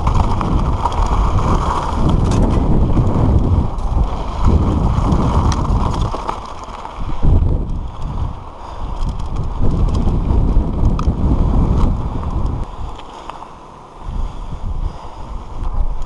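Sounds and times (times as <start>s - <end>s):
bike jolting over bump: 0.0s - 12.6s
wind buffeting microphone: 0.0s - 13.0s, 14.0s - 16.0s
bike chain and frame clattering: 0.0s - 13.1s
tyres crunching over stones: 0.0s - 13.5s.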